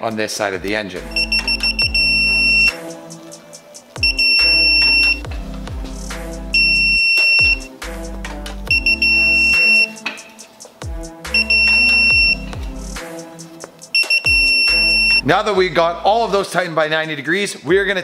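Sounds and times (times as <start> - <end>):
background music with bass: 0.0 - 18.0
torque wrench beeping: 1.1 - 2.8, 4.0 - 5.2, 6.5 - 7.7, 8.7 - 10.0, 11.3 - 12.5, 13.9 - 15.2.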